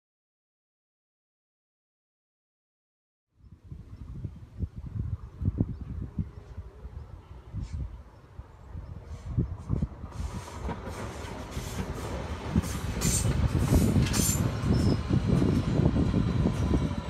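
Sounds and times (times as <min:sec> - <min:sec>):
train passing close by: 0:05.1 - 0:17.0
sharp clicks of wheels on rails: 0:10.2 - 0:15.7
wheels clattering over rail joints: 0:10.2 - 0:16.8.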